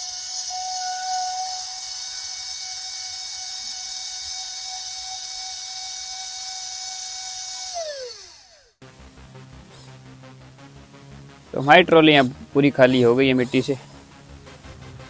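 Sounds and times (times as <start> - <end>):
small electric motor whining: 0.0 - 8.8.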